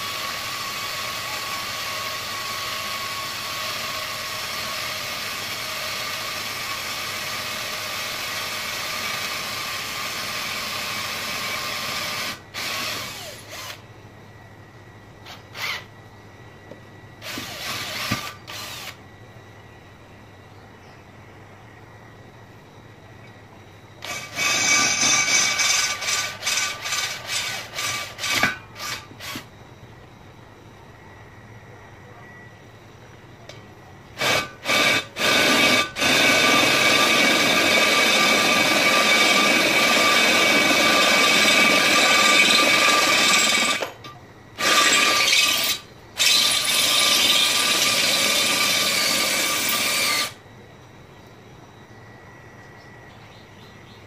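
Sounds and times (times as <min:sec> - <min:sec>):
electric drill grinding through metal: 0:00.0 - 0:13.8, 0:15.2 - 0:15.9, 0:17.2 - 0:19.0, 0:24.0 - 0:29.5, 0:34.2 - 0:50.4.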